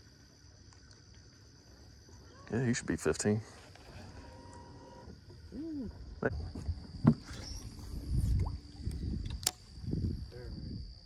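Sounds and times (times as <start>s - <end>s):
high insect buzz: 0.0s - 11.0s
knocks and thumps on a boat: 6.4s - 7.5s
sharp click: 9.2s - 9.6s.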